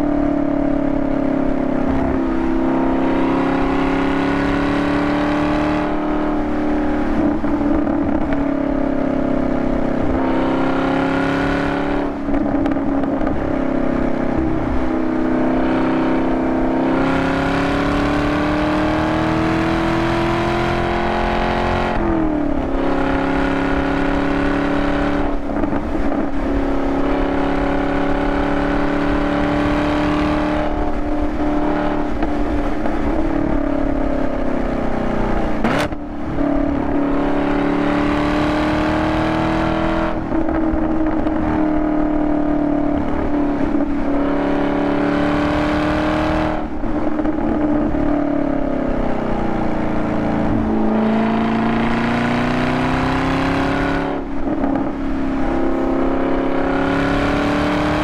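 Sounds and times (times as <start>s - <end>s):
car engine revving: 0.0s - 58.0s.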